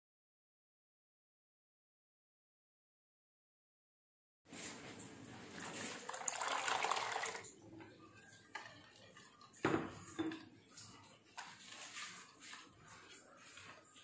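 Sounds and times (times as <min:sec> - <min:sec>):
water pouring into a bowl: 0:04.9 - 0:14.0.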